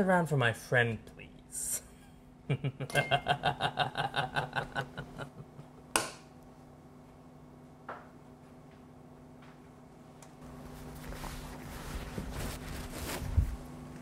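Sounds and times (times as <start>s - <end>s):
low room hum: 0.0s - 14.0s
man laughing: 2.4s - 5.9s.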